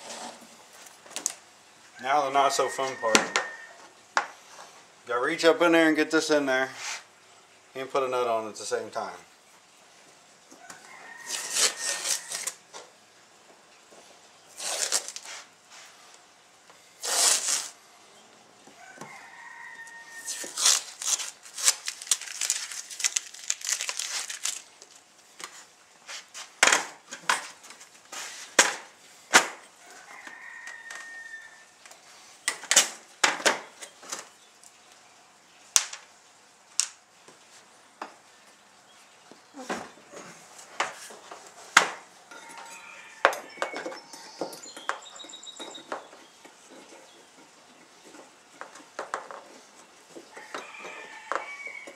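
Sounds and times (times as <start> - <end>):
masking tape tearing off: 11.3 - 12.6, 14.5 - 15.5, 17.0 - 17.8, 20.3 - 25.0
tools and parts clicking and knocking: 41.8 - 49.5, 50.1 - 51.9.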